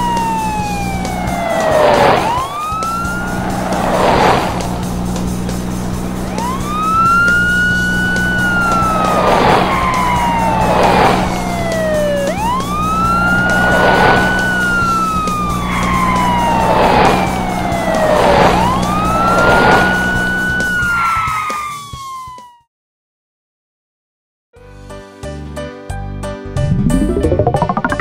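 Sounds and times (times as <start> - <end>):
cartoon police siren wailing: 0.0 - 4.9, 6.0 - 22.7
background music: 0.0 - 21.3, 24.6 - 28.0.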